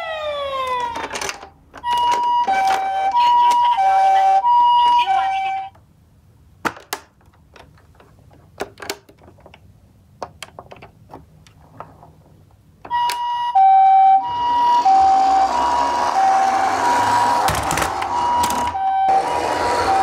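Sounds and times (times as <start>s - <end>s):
two-tone electronic toy siren: 0.0s - 1.1s, 1.8s - 5.7s, 12.9s - 20.0s.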